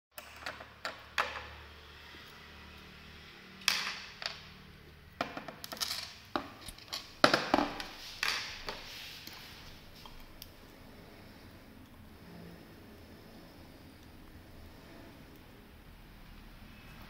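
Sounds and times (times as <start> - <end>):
metal parts clicking on tabletop: 5.2 - 8.5.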